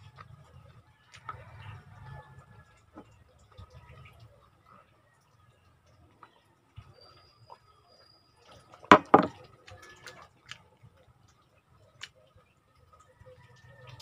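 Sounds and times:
sharp knocks: 8.9 - 9.4.

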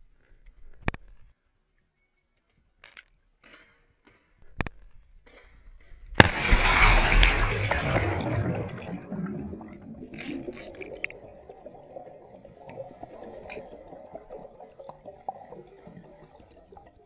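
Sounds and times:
pool water heard underwater: 6.1 - 17.0
bubbly clicks and pops: 6.2 - 17.0.

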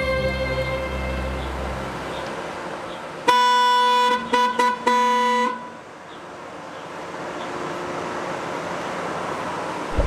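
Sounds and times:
car horn honking: 3.2 - 5.8.

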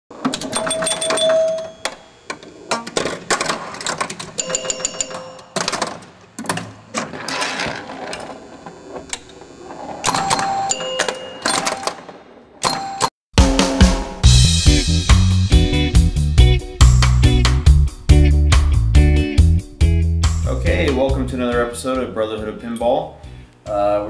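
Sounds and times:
pinball mechanical clacks: 0.1 - 13.1
bell-like dings: 4.4 - 5.5.

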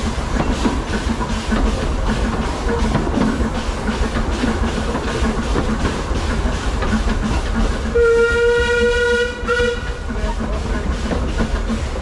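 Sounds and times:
steam train wheels rattling: 0.0 - 12.0
steam whistle: 7.9 - 10.0.

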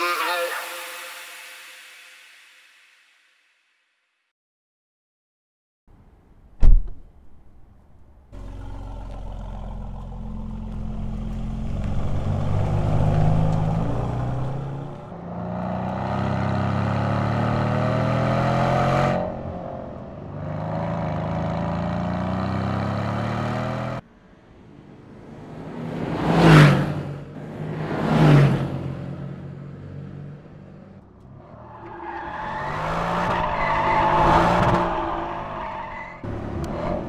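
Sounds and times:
loud thump: 6.6 - 7.4
car engine accelerating: 8.0 - 37.0.

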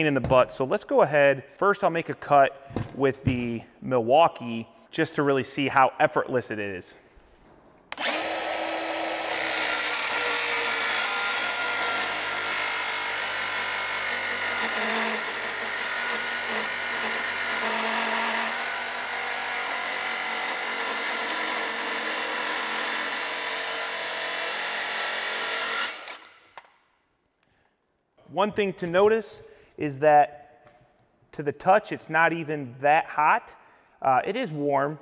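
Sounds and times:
circular saw cutting steel: 7.9 - 26.6.

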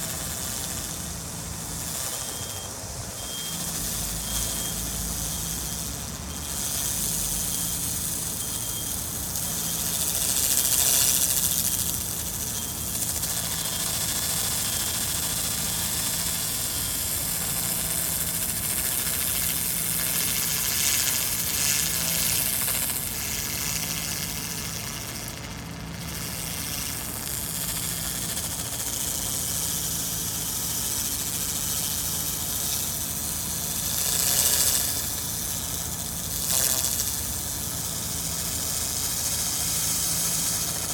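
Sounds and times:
laser cleaner high hiss: 0.0 - 40.9.

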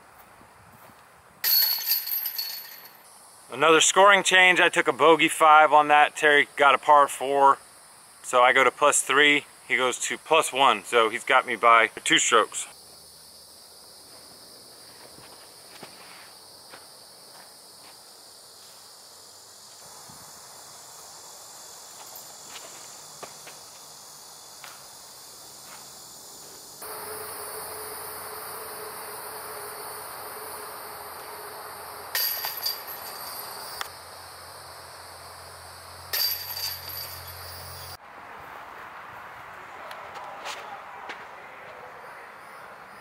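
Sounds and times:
insects buzzing: 3.0 - 39.8, 41.8 - 43.0
faint footstep-like clicks: 24.6 - 24.8.

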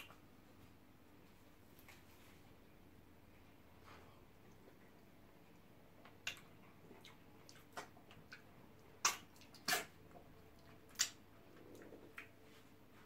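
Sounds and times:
smacks and slurps while chewing: 5.5 - 12.5
wet mouth eating sounds: 5.6 - 12.5.

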